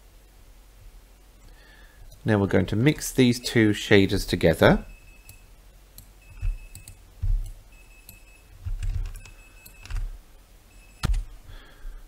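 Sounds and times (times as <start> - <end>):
dull low thumps: 7.2 - 7.6.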